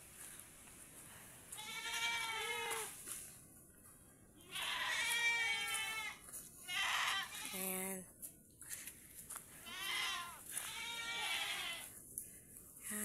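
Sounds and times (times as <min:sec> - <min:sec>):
goats bleating: 0:01.6 - 0:03.0, 0:04.4 - 0:07.6, 0:09.6 - 0:11.9.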